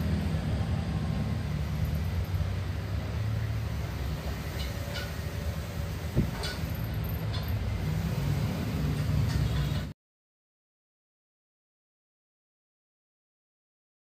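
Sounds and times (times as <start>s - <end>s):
workshop machinery hum: 0.0s - 9.9s.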